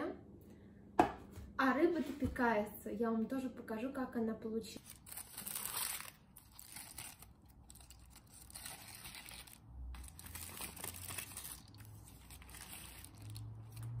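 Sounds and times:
aluminium foil crinkling: 4.8s - 14.0s.

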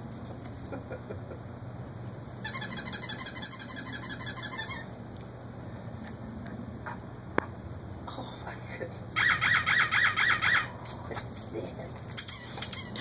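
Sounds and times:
squeaky toy sound from phone: 2.4s - 4.9s, 12.2s - 13.0s.

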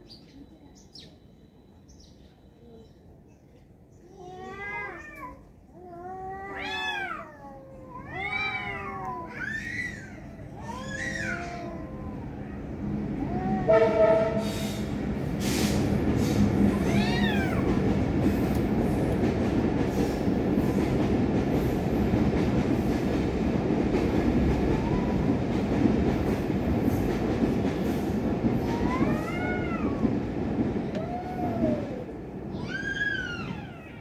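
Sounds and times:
cats yowling: 4.2s - 13.8s, 16.7s - 17.9s, 28.6s - 30.2s, 30.8s - 34.0s.

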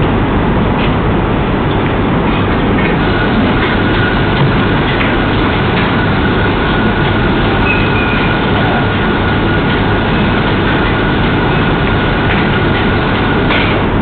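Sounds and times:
loud hiss and rumble: 0.0s - 14.0s.

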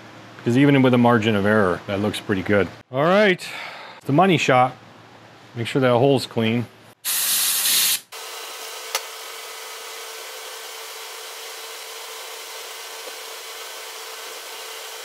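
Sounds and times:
compressed air blast from blow gun: 7.0s - 8.1s.

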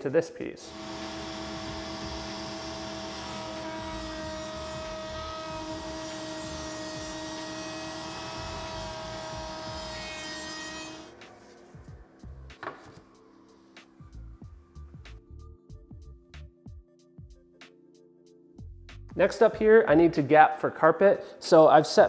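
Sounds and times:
router bit cutting wood: 0.7s - 11.2s
router whining: 0.7s - 11.2s.

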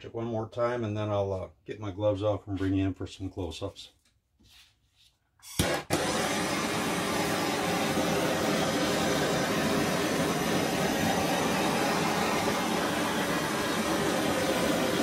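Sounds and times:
torch flame hissing: 5.6s - 15.0s.

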